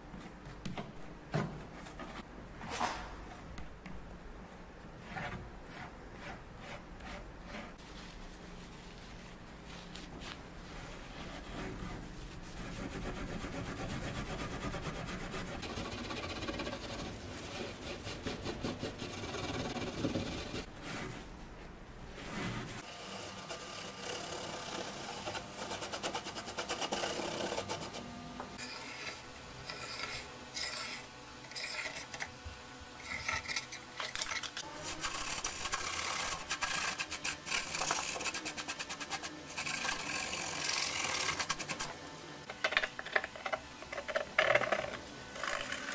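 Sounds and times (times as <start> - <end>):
steel wool scrubbing wood: 6.6 - 21.2, 34.6 - 41.9.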